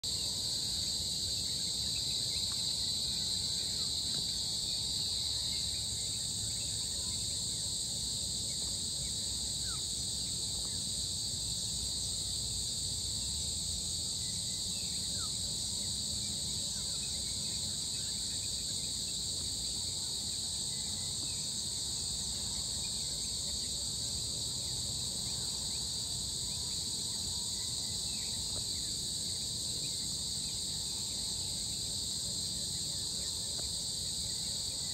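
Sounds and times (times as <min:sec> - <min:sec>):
insects droning: 0:00.0 - 0:34.9.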